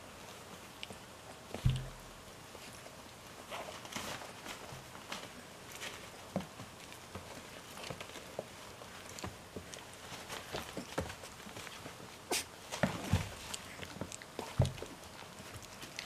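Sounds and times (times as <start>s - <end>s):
puppy paws pattering and scrabbling: 0.0s - 16.0s
soft rustles: 0.0s - 16.0s
small knocks: 1.5s - 2.0s
low thump: 1.6s - 2.0s.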